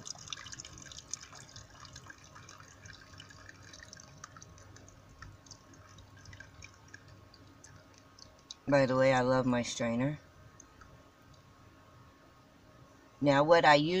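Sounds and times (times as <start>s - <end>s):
water trickling into plastic bowl: 0.0s - 8.7s.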